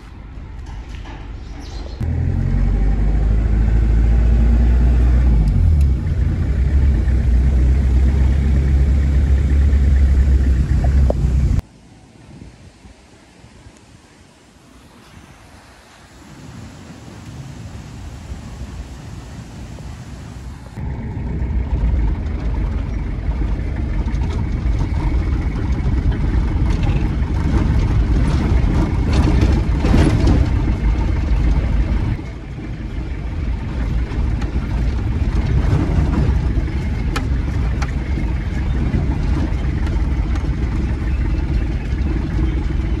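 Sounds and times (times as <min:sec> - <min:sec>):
engine and tyres rumbling: 0:00.0 - 0:43.0
knocks and rattles from bumps: 0:22.1 - 0:32.2, 0:33.6 - 0:43.0.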